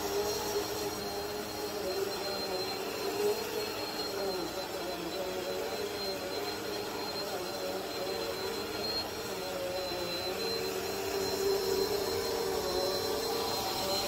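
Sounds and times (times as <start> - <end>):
vacuum cleaner running: 0.0 - 14.0.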